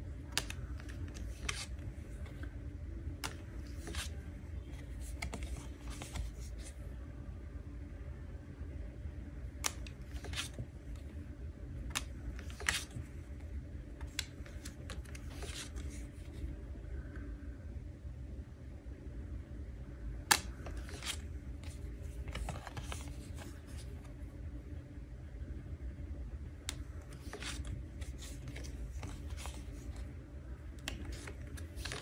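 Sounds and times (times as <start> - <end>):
low steady hum: 0.0 - 32.0
paper cards flicking and sliding: 0.3 - 2.5, 3.2 - 6.8, 9.6 - 11.0, 11.8 - 13.2, 13.9 - 16.4, 20.3 - 24.1, 26.6 - 32.0.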